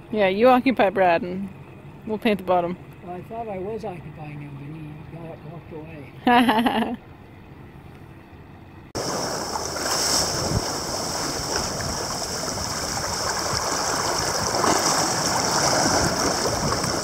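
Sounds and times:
water rushing along a hull: 8.2 - 17.0
bow wave breaking: 9.0 - 17.0.

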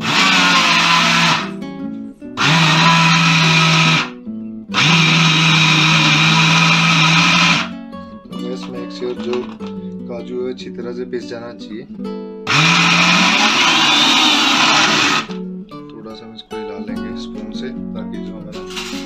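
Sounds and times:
mixer grinder running: 0.0 - 1.5, 2.4 - 4.1, 4.7 - 7.7, 8.6 - 9.7, 12.5 - 15.4, 18.7 - 19.0.

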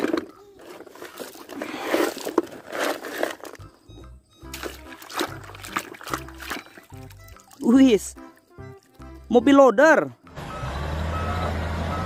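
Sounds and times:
water splashing in a puddle: 4.5 - 9.3.

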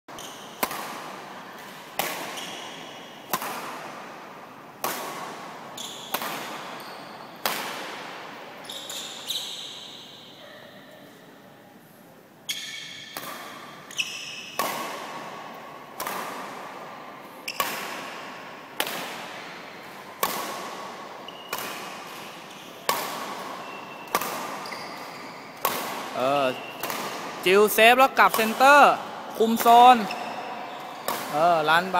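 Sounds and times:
rackets hitting shuttlecock: 0.1 - 9.6, 12.5 - 31.9.

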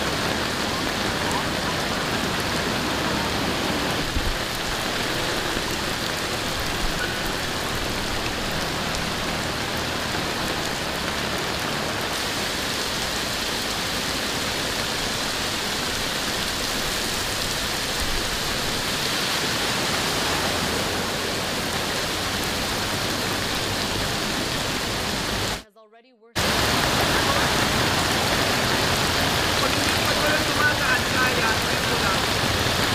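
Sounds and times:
heavy rain on flooded street: 0.0 - 25.6, 26.4 - 32.9.

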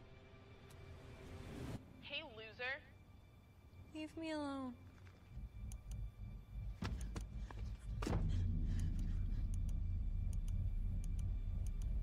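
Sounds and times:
steady low rumble: 5.0 - 12.0.

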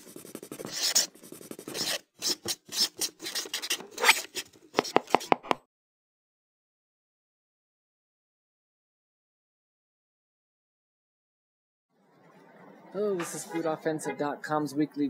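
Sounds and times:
pen scratching on paper: 0.0 - 5.6.

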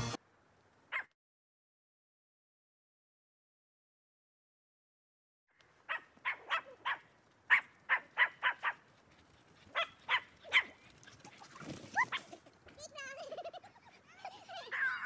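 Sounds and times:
dog barking: 0.9 - 1.1, 5.9 - 8.8, 9.7 - 10.8.

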